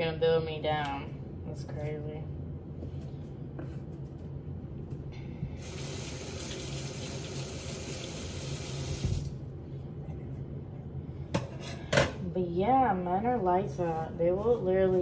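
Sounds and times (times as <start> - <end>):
faucet running into a sink: 5.6 - 9.3.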